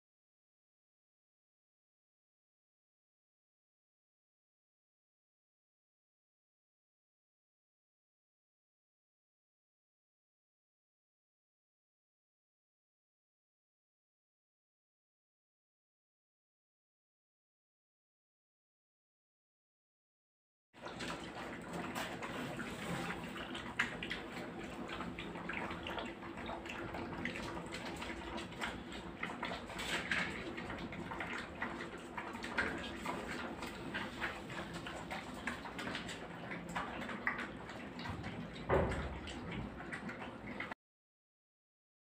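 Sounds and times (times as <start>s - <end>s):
puppies lapping and smacking: 20.8s - 40.8s
thump: 38.7s - 39.2s.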